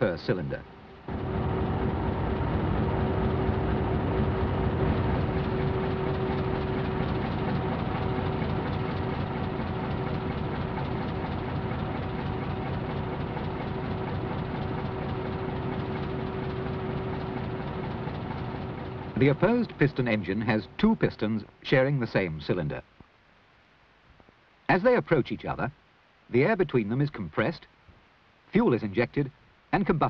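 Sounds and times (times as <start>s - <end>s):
constant engine whine: 0.0s - 22.7s
diesel engine clatter and rumble: 1.0s - 21.5s.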